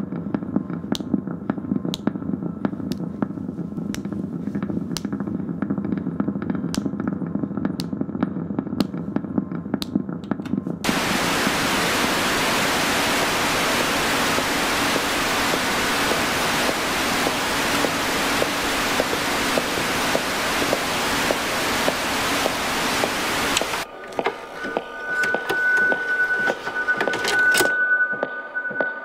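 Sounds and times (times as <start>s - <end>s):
loud even hiss: 10.9s - 24.8s.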